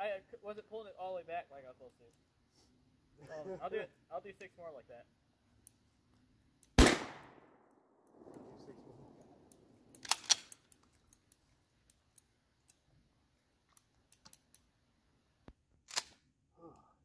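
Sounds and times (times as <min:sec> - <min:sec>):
firearm action clacking: 0:09.1 - 0:12.8
small metallic ticks: 0:09.5 - 0:12.8.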